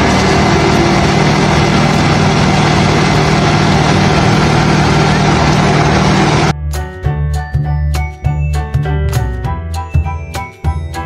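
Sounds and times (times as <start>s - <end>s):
diesel truck engine running: 0.0s - 6.6s.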